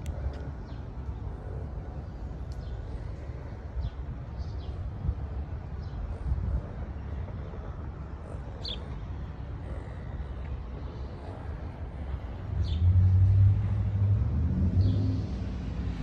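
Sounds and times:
traffic rumble: 0:00.0 - 0:16.0
vehicle engine passing: 0:12.5 - 0:16.0.

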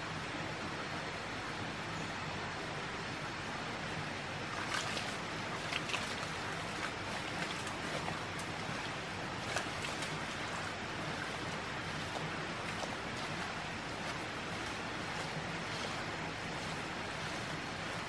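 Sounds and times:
flowing water: 0:00.0 - 0:18.0.

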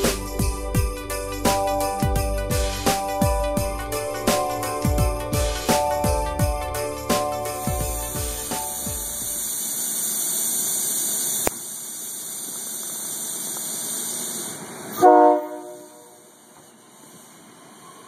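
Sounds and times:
electric train passing with hiss: 0:00.0 - 0:18.0
train horn blast: 0:15.0 - 0:16.4.

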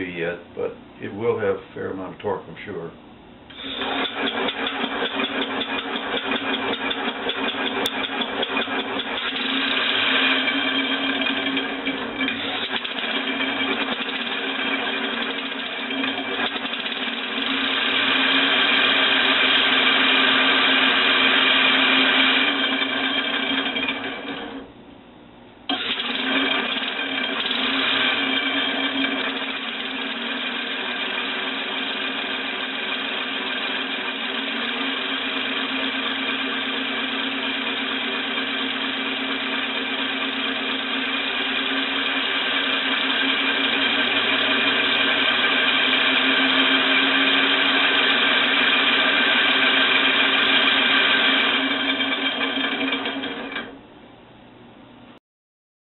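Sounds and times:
compressed-air engine running: 0:03.5 - 0:24.2, 0:25.7 - 0:53.0.

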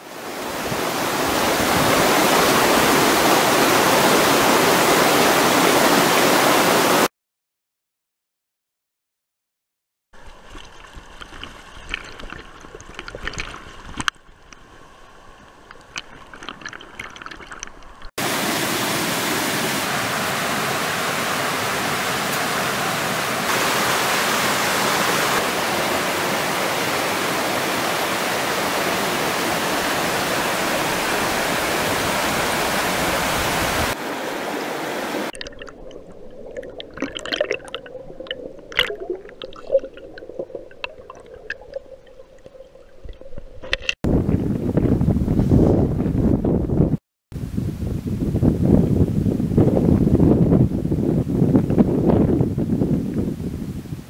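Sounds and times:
mountain stream rushing over boulders: 0:00.0 - 0:07.1, 0:18.2 - 0:35.4
underwater bubbling and gurgling: 0:10.2 - 0:18.1, 0:35.3 - 0:43.9.

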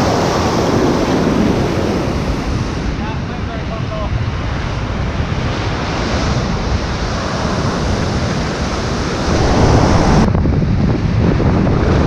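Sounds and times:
ocean surf: 0:00.0 - 0:10.8
wind buffeting microphone: 0:04.1 - 0:12.0.

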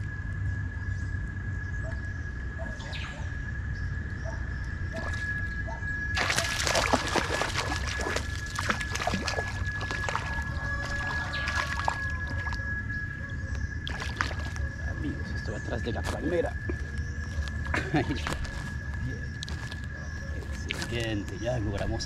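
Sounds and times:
fish splashing in water: 0:06.2 - 0:12.8, 0:13.8 - 0:15.1
steady high tone: 0:07.7 - 0:13.8.

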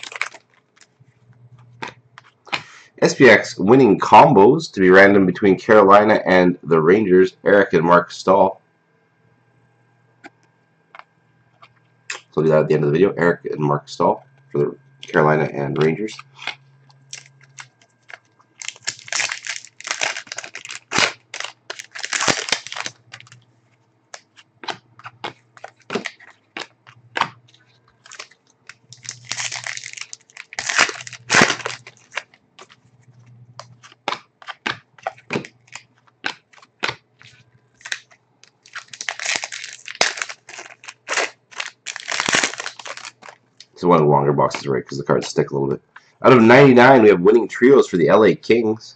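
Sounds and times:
foil wrappers crinkling: 0:00.0 - 0:02.8, 0:15.8 - 0:43.8.

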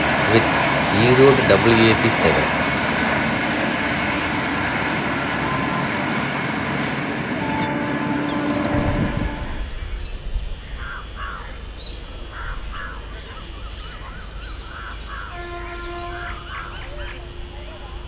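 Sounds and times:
distant locomotive horn: 0:00.0 - 0:10.2, 0:14.7 - 0:18.0
train noise: 0:00.0 - 0:18.0
crows cawing: 0:10.6 - 0:17.9.

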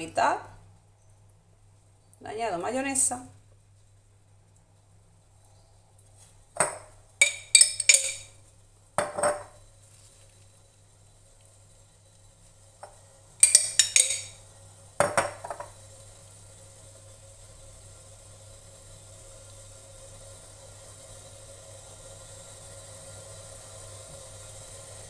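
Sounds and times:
cutlery clinking against a dish: 0:07.2 - 0:08.3, 0:13.4 - 0:14.4.

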